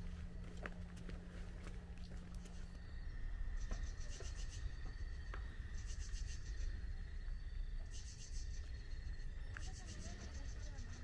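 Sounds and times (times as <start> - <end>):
footsteps on gravel path: 0.0 - 2.8.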